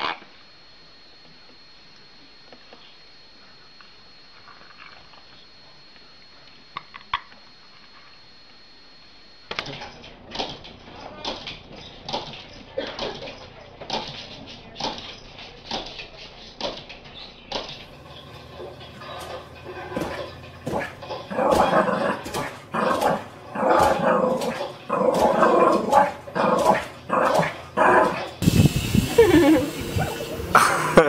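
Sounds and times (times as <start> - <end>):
dog barking: 19.0 - 28.4.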